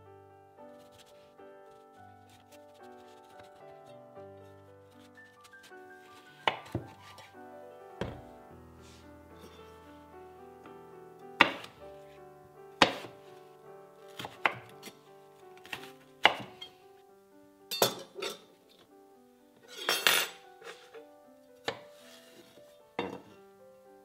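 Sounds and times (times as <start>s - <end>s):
soft background music: 0.0s - 24.0s
knife scraping clatter: 19.7s - 21.0s.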